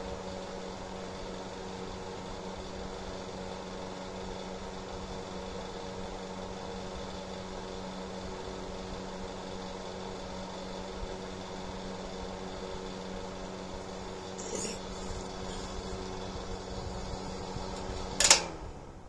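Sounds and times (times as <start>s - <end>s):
heater fan motor humming: 0.0s - 19.0s
rush of blown air: 14.4s - 17.0s.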